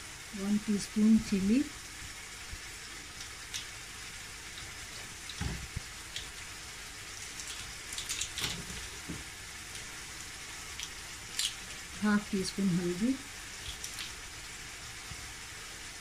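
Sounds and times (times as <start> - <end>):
meat sizzling in a frying pan: 0.0 - 16.0
crackles and clicks: 2.0 - 12.1, 13.3 - 15.3.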